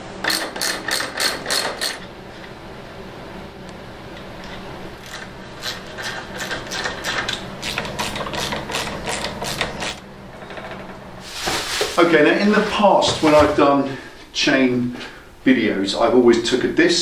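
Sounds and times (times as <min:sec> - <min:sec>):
ratchet wrench clicking: 0:00.2 - 0:02.0, 0:05.0 - 0:10.0.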